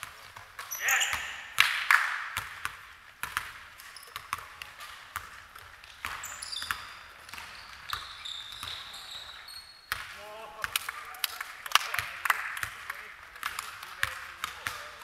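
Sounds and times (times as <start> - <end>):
sneakers squeaking on court: 0.3 - 1.5, 2.4 - 10.2.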